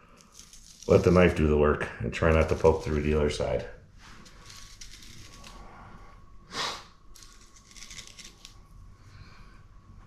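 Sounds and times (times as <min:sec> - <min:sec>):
knife scraping over fish bones: 0:00.1 - 0:01.4, 0:02.3 - 0:03.3, 0:04.2 - 0:05.6, 0:07.2 - 0:08.6
short hissing sound: 0:06.5 - 0:06.9.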